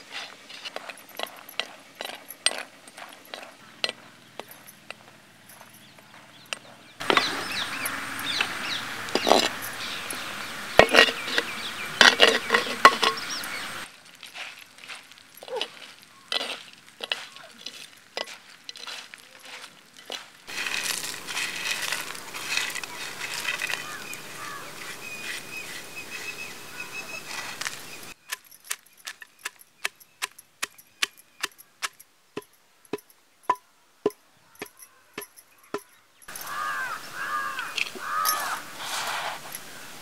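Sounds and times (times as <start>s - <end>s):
steady noisy hiss: 7.0s - 14.2s, 20.5s - 28.2s, 36.9s - 40.0s
pestle pounding in stone mortar: 29.4s - 36.5s.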